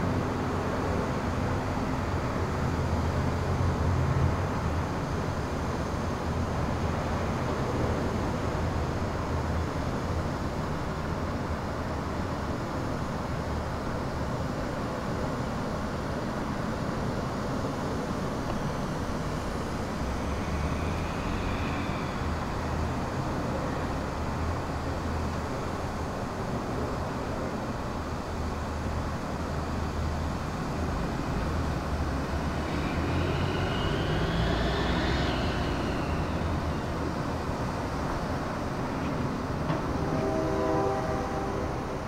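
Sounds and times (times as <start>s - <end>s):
low rumble with hiss: 28.0s - 40.0s
rising and falling high tone: 32.1s - 38.0s.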